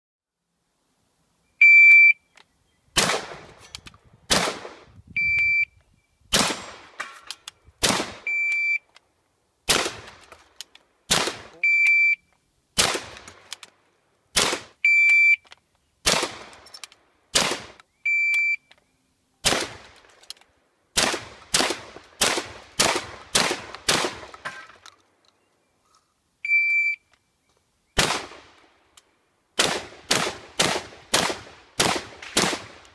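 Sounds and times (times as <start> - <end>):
shot timer beeps: 1.6 - 2.2, 5.2 - 5.8, 8.2 - 8.8, 11.6 - 12.3, 14.8 - 15.4, 18.1 - 18.7, 26.5 - 27.1
shotgun shots: 3.0 - 3.6, 4.3 - 4.9, 6.3 - 7.2, 7.8 - 8.4, 9.7 - 10.2, 11.1 - 11.6, 12.8 - 13.5, 14.3 - 14.8, 16.0 - 16.6, 17.3 - 17.8, 19.4 - 20.1, 21.0 - 24.7, 28.0 - 28.6, 29.6 - 32.9.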